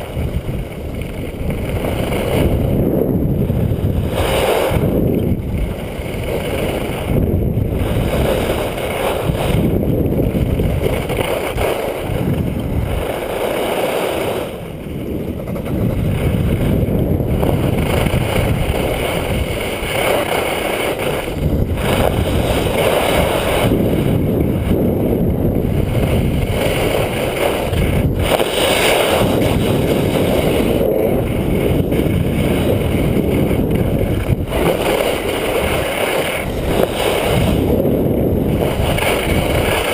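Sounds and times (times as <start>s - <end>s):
skis sliding on snow: 0.0s - 39.9s
wind rushing over microphone: 0.0s - 39.9s.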